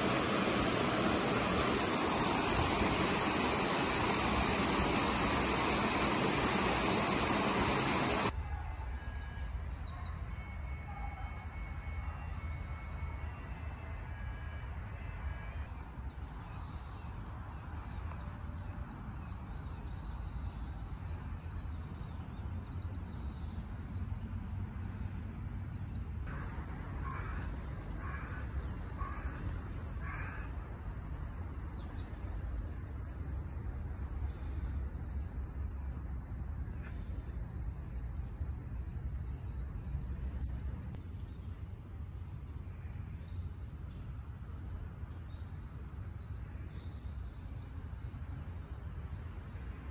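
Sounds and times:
small birds chirping: 0.0 - 8.3
crow cawing: 27.0 - 29.4, 30.0 - 30.5.

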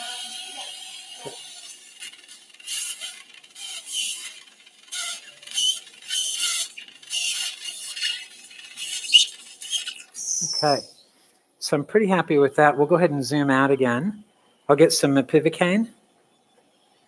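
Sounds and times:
suction tip hissing and slurping: 0.0 - 11.0.

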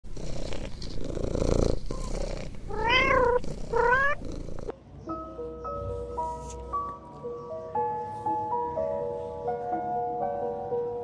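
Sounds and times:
cat purring: 0.1 - 4.7
cat meowing: 2.7 - 4.6.

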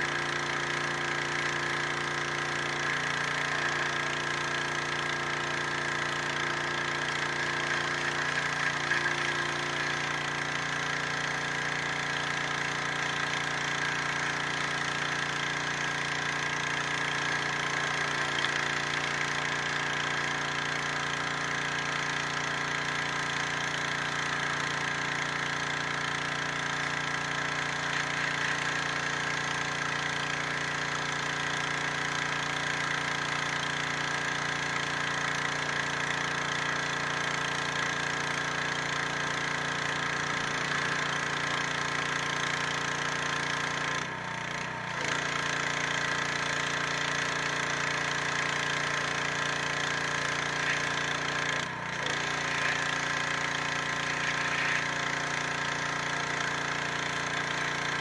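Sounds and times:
pressure washer pump drone: 0.0 - 58.0
water jet hissing on stone: 48.5 - 58.0.

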